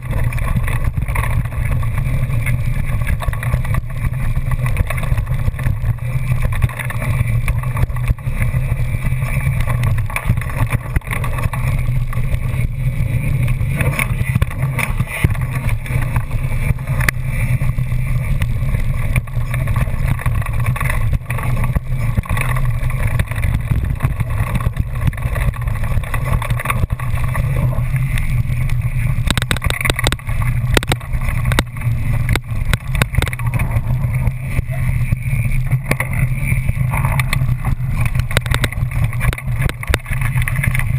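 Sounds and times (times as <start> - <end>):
bike rattling over bumps: 0.0 - 40.9
bike tyres rumbling on gravel: 0.0 - 40.9.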